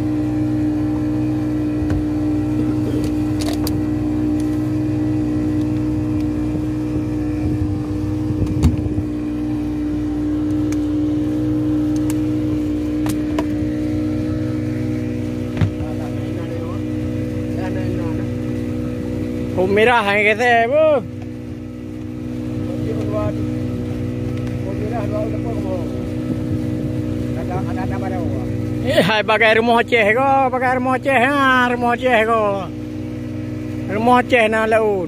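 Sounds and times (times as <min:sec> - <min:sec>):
boat engine droning: 0:00.0 - 0:35.0.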